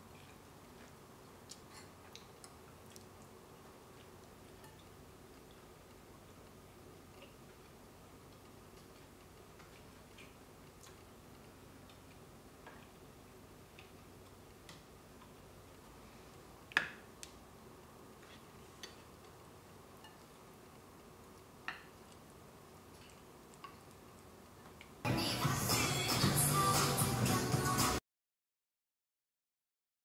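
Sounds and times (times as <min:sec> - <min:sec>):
metal spoon clinking on bowls: 0:20.0 - 0:20.3.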